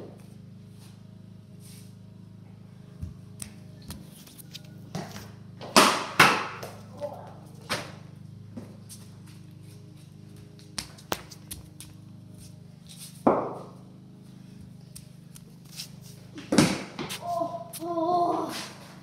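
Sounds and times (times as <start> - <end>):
knocks and scuffs: 2.9 - 6.9, 7.5 - 13.8, 14.5 - 19.0.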